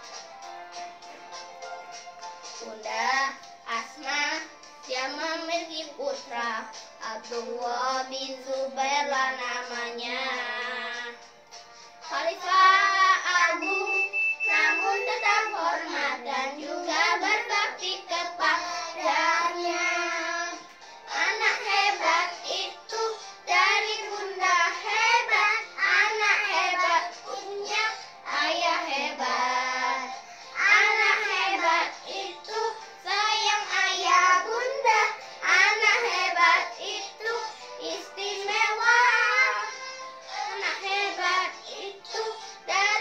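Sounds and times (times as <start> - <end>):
children singing: 12.1 - 43.0.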